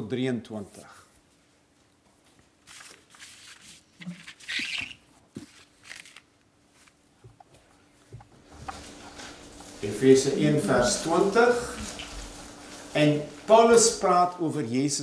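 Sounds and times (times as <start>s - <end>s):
faint steady hum: 0.0s - 15.0s
pages turning and rustling: 2.3s - 7.0s, 8.5s - 10.0s, 11.0s - 14.0s.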